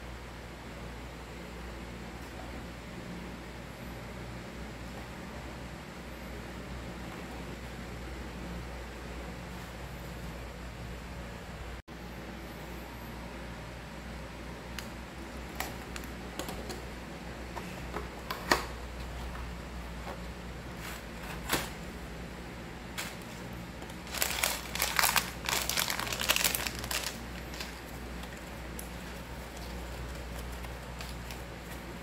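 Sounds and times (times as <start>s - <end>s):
plastic bag crinkling: 22.9s - 32.0s.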